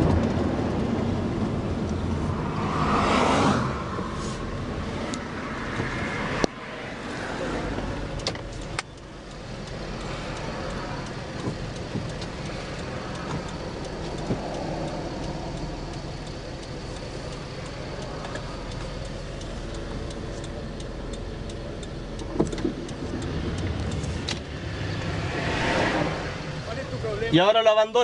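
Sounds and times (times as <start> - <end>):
car engine hum: 0.0 - 28.0
road noise: 0.0 - 28.0
light clicks: 7.7 - 24.7.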